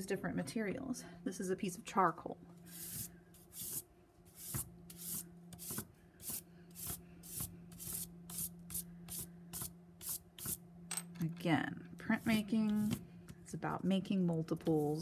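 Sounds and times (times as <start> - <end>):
charcoal scratching on paper: 2.7 - 3.8, 4.4 - 10.6, 12.1 - 12.5.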